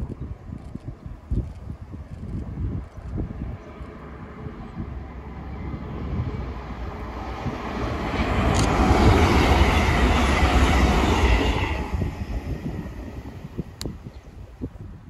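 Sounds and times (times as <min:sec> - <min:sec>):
train passing at speed: 0:03.3 - 0:14.9.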